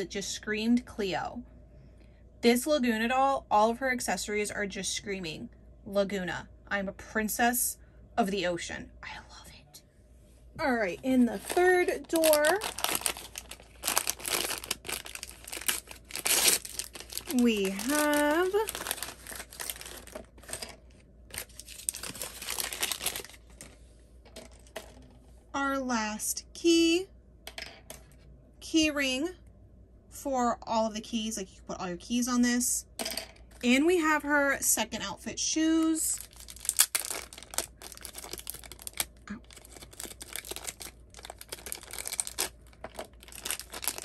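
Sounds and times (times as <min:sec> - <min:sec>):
packaging crinkling: 0:11.0 - 0:23.8, 0:36.2 - 0:44.0.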